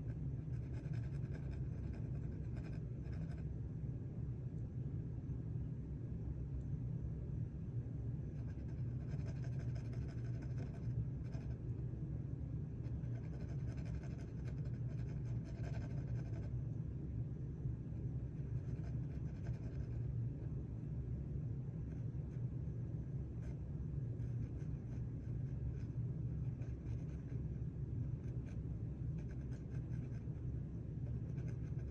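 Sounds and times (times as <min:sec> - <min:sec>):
steady low hum: 0:00.0 - 0:31.9
pencil scratching on paper: 0:00.1 - 0:03.5, 0:08.4 - 0:11.6, 0:12.8 - 0:16.5, 0:18.5 - 0:20.0, 0:24.2 - 0:27.5, 0:29.2 - 0:30.4, 0:31.0 - 0:31.9.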